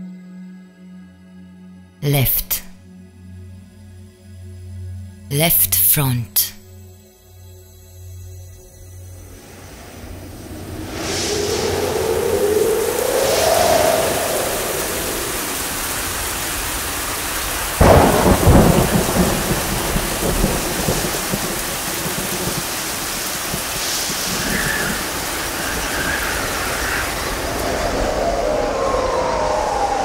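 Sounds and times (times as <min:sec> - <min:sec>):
steady rain: 0:09.2 - 0:30.0
thunderclap rumbling: 0:09.4 - 0:30.0.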